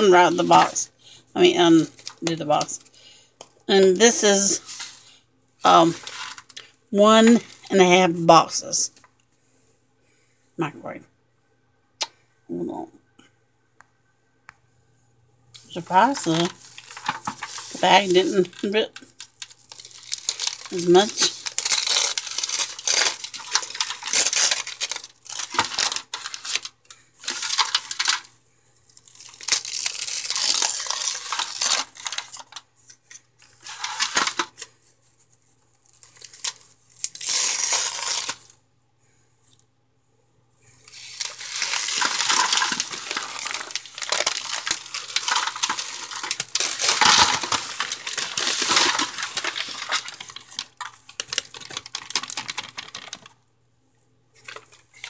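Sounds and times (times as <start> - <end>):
plastic bag crinkling: 0.0 - 7.9, 15.6 - 38.6, 40.8 - 53.4, 54.4 - 55.0
brittle chunks rattling in foil pan: 15.8 - 28.3, 29.2 - 32.6, 33.6 - 34.6, 40.9 - 53.3.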